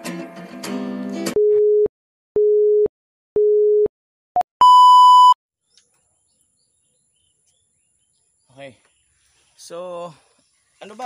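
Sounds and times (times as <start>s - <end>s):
electronic countdown beeps: 4.6s - 5.4s.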